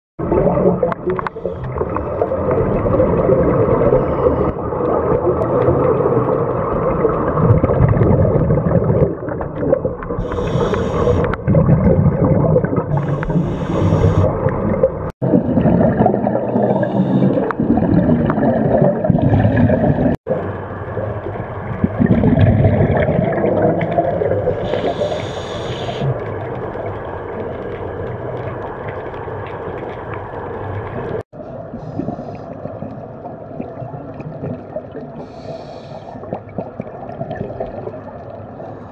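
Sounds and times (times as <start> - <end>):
underwater bubbling exhalation: 0.2 - 20.6, 21.6 - 26.8, 31.1 - 38.8
regulator hiss: 10.2 - 11.3, 13.0 - 14.3, 24.6 - 26.1.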